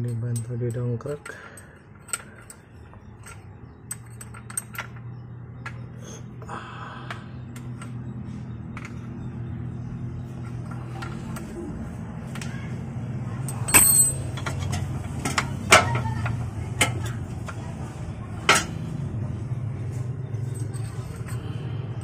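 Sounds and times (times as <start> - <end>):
metal tools clanking: 0.0 - 6.0, 13.4 - 22.0
steady low hum: 0.0 - 22.0.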